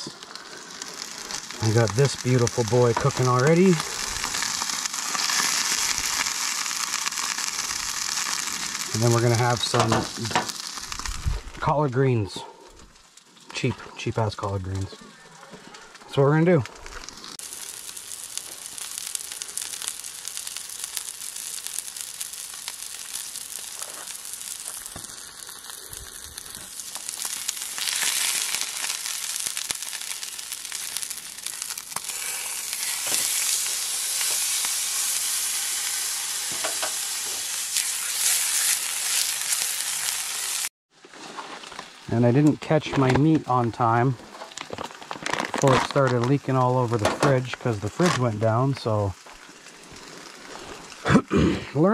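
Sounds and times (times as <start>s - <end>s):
steak sizzling in pan: 0.0s - 11.6s, 15.8s - 40.7s, 48.6s - 51.1s.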